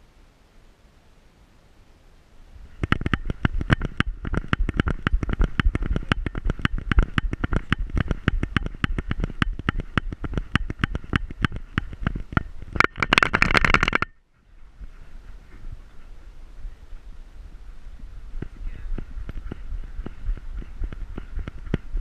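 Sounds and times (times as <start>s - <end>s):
camera knocking with running strides: 2.7s - 14.1s, 18.4s - 22.0s.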